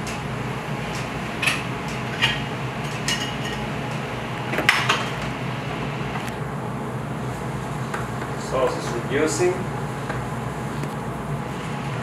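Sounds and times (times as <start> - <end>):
ventilation hum: 0.0 - 12.0
metal pots and pans clanking: 2.2 - 3.7.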